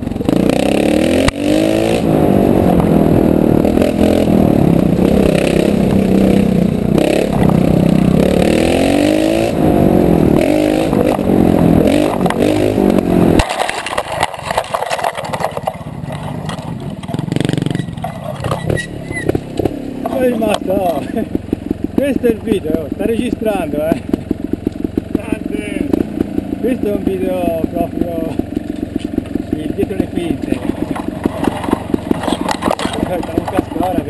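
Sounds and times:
motorcycle engine revving: 0.0 - 34.0
clattering and scraping knocks: 13.4 - 20.7, 30.4 - 34.0.

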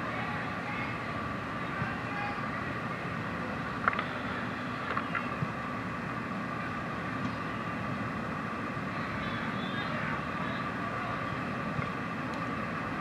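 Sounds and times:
low rumble and hiss: 0.0 - 13.0.

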